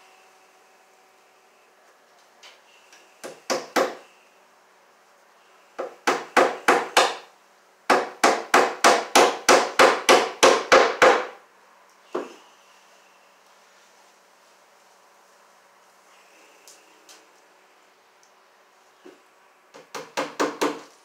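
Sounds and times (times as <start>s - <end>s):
hammer striking wood: 3.2s - 4.0s, 5.8s - 7.3s, 7.9s - 11.4s, 19.7s - 20.9s.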